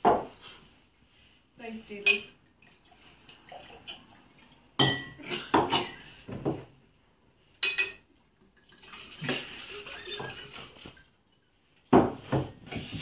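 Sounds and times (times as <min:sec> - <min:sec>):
dishes and utensils clattering: 0:04.8 - 0:06.6, 0:07.6 - 0:08.1, 0:09.2 - 0:11.0.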